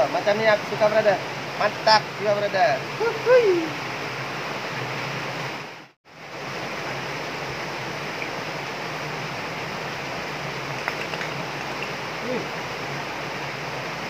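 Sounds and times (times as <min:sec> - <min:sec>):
shallow water rushing over concrete: 0:06.5 - 0:14.0.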